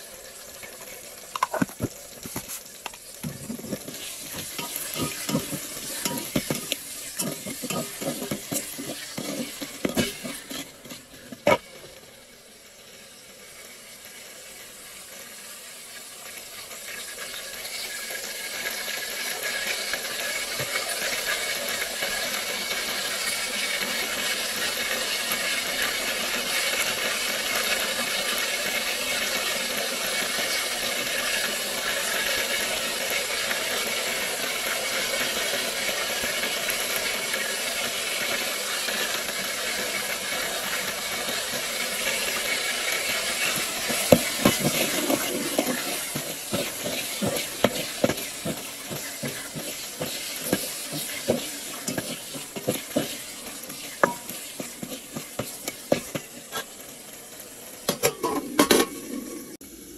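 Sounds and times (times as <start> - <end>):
food frying sizzle: 0.0 - 59.9
spoon knocking against pot: 54.0 - 54.3.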